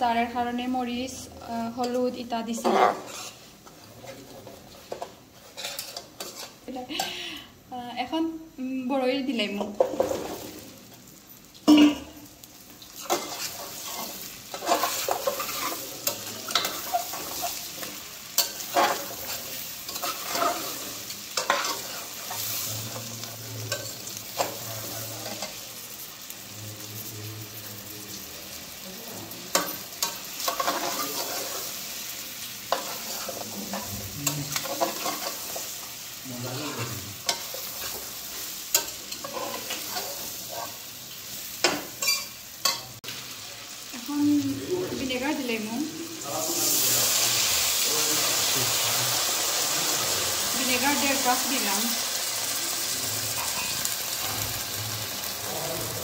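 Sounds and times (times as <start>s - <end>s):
fruit sizzling in oil: 0.0s - 56.0s
spatula scraping metal pan: 1.8s - 3.5s, 4.9s - 6.6s.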